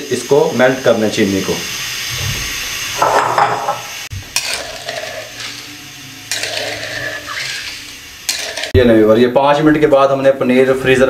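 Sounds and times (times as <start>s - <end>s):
ladle scraping sugar in pan: 4.3s - 8.7s.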